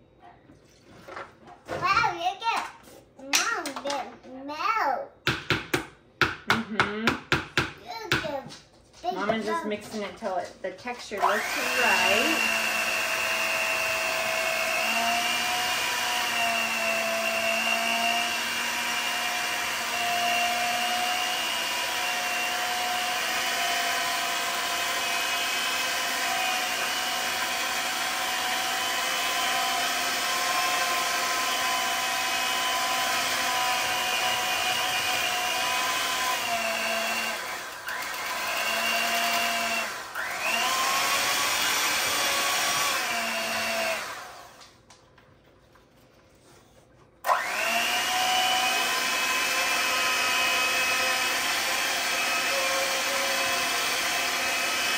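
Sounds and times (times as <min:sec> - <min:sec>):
electric hand mixer running: 0:11.0 - 0:44.8, 0:47.2 - 0:54.9.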